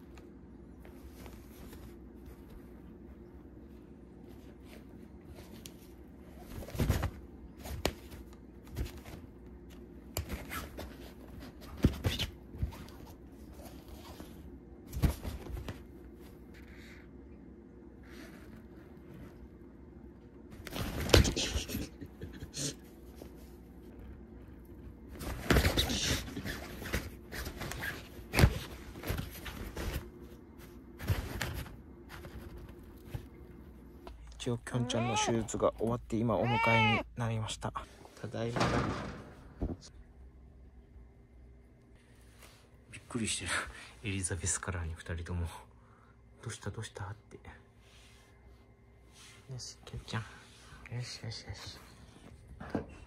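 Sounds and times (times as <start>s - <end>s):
fabric rustling and crinkling: 0.0s - 16.9s, 23.0s - 34.2s.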